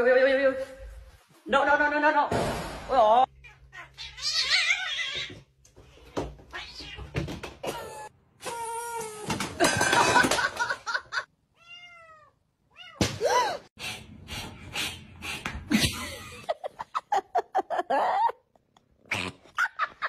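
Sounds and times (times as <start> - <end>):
cat meowing: 3.4 - 5.4, 11.6 - 13.0.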